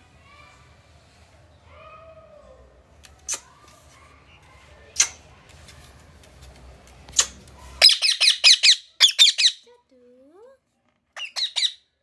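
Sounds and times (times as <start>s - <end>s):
parakeet calls: 7.8s - 9.6s, 11.2s - 11.9s.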